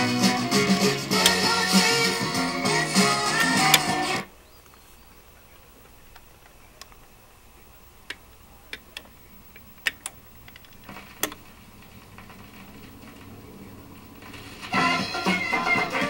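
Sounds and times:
faint record hiss: 0:00.0 - 0:16.0
vinyl record clicks and pops: 0:00.0 - 0:16.0.

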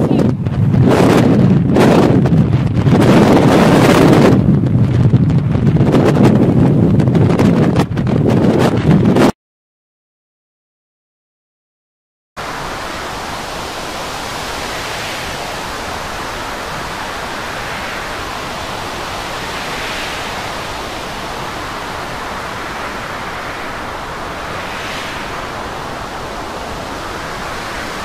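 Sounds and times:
storm wind: 0:00.0 - 0:09.3, 0:12.4 - 0:28.0
rough sea: 0:12.4 - 0:28.0.

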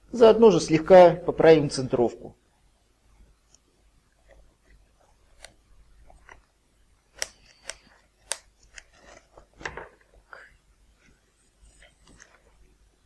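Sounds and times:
sharp clicks: 0:07.1 - 0:08.9.

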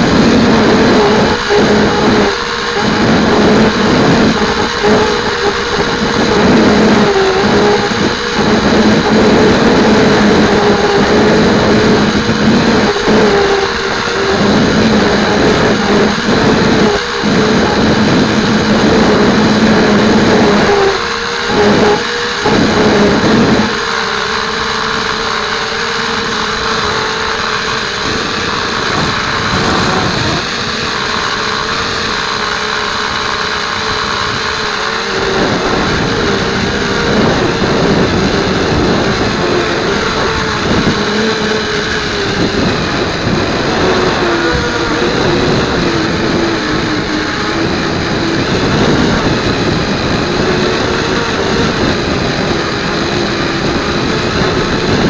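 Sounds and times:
quadcopter propellers whining: 0:00.0 - 0:55.0
wind on microphone: 0:00.0 - 0:55.0.

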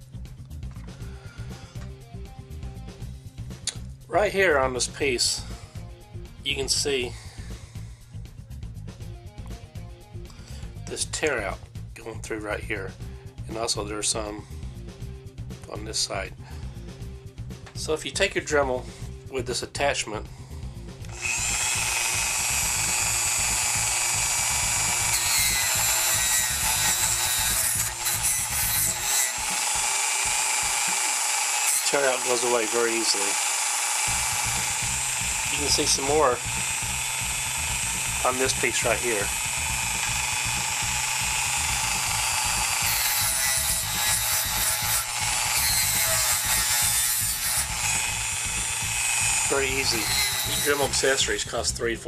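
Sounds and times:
rotary tool whining: 0:21.1 - 0:51.2
brush scratching wood: 0:49.4 - 0:51.2.

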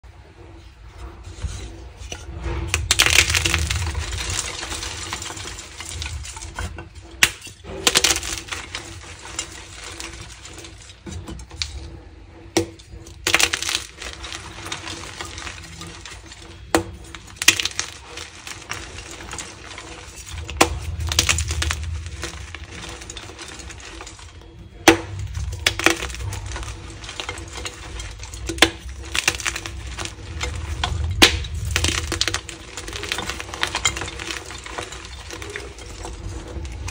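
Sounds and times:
chalk crunching and crumbling: 0:00.7 - 0:36.9.

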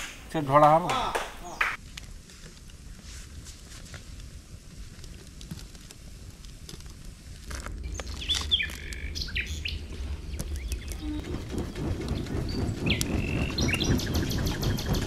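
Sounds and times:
low rumble: 0:07.1 - 0:15.0
birds chirping: 0:07.8 - 0:15.0.

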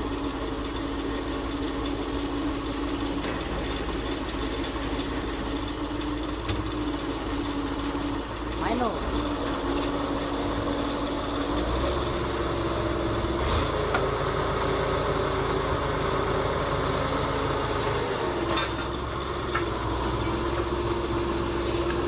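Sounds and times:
crane engine running: 0:00.0 - 0:22.0.

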